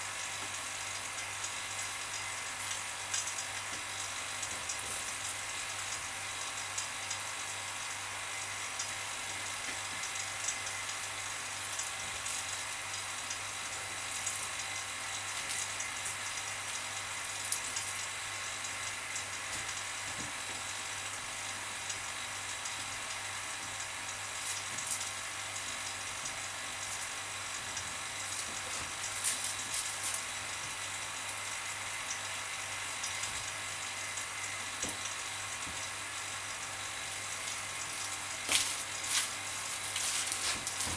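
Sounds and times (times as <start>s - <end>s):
vacuum pump hissing and humming: 0.0s - 40.9s
plastic film crackling: 28.5s - 30.3s, 38.4s - 40.9s.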